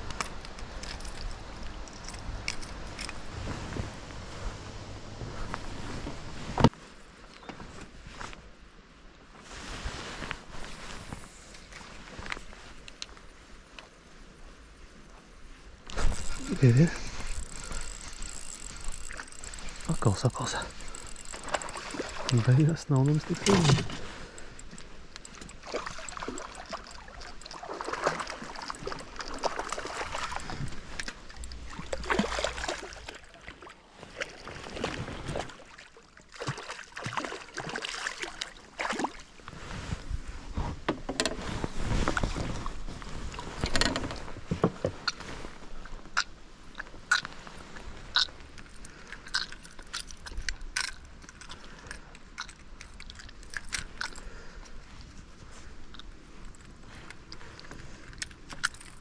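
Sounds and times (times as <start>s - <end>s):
fishing tackle clicks and knocks: 0.0s - 3.3s, 15.9s - 32.3s, 40.8s - 41.4s, 43.6s - 45.2s, 48.1s - 54.8s, 55.9s - 59.0s
water sloshing around boat: 15.8s - 59.0s.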